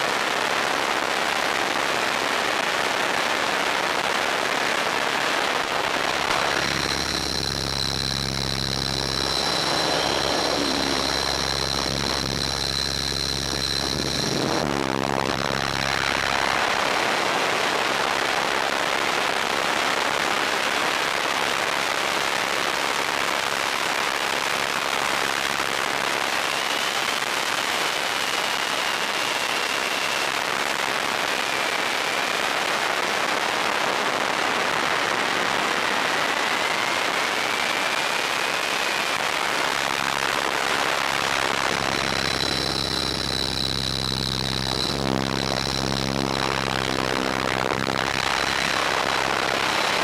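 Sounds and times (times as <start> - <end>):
motor and rotor whine: 5.8 - 17.5, 36.7 - 50.0
air rushing over microphone: 5.9 - 16.4.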